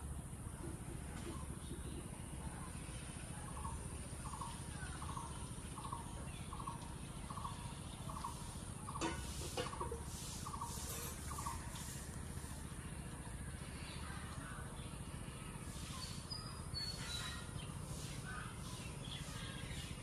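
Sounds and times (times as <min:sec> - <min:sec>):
low outdoor hum: 0:00.0 - 0:20.0.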